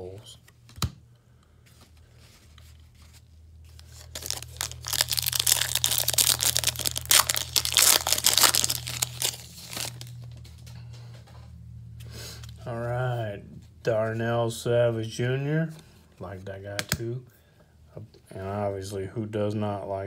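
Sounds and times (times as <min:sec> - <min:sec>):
steady low hum: 0:00.0 - 0:16.6
card wrapper tearing and crinkling: 0:03.0 - 0:10.4.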